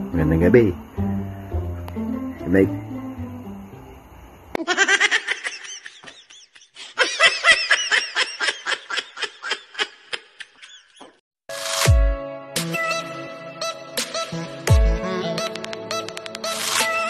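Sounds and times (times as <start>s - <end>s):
high-pitched giggling laughter: 4.6s - 11.2s.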